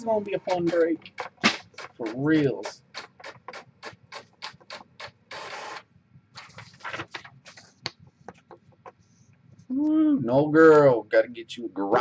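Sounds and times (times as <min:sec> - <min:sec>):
paper taps and clicks: 0:00.5 - 0:04.9
paper sliding swishes: 0:06.4 - 0:07.9.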